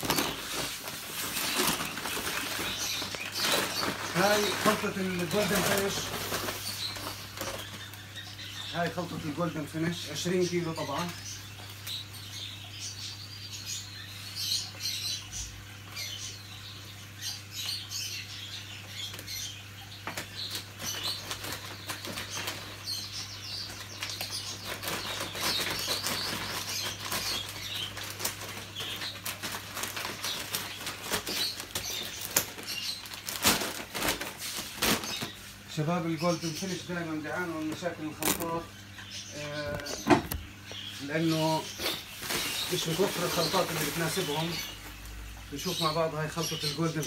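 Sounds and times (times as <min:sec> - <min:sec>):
paper sack crinkling and rustling: 0:00.0 - 0:08.0, 0:20.1 - 0:35.6, 0:37.3 - 0:38.7, 0:39.5 - 0:40.5, 0:41.1 - 0:47.0
low electrical hum: 0:00.0 - 0:47.0
small birds chirping: 0:00.0 - 0:47.0.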